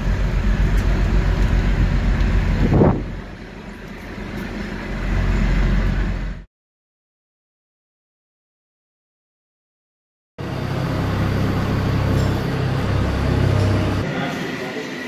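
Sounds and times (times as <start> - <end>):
crane engine running: 0.0 - 6.5, 10.4 - 15.0.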